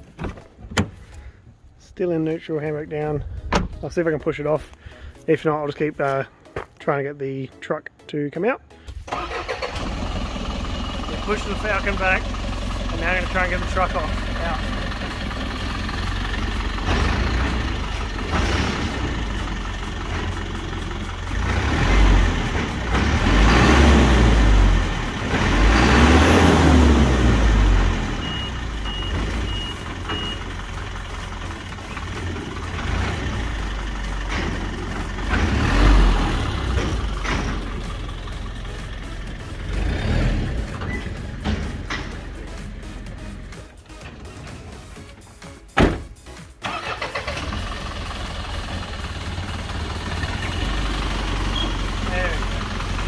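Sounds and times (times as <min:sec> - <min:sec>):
truck engine revving: 0:09.1 - 0:44.5, 0:46.6 - 0:53.0
high beeps: 0:28.2 - 0:30.4.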